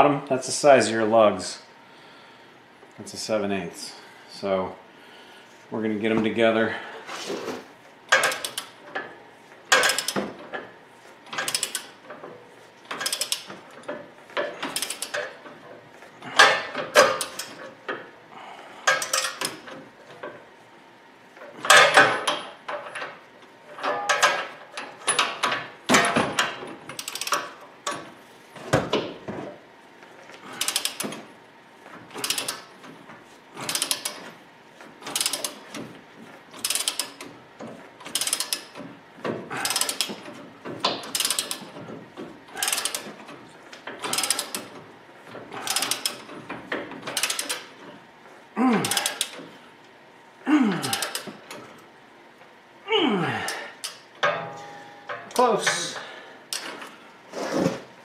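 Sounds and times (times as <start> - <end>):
socket ratchet clicking: 41.1 - 41.6, 47.2 - 47.6.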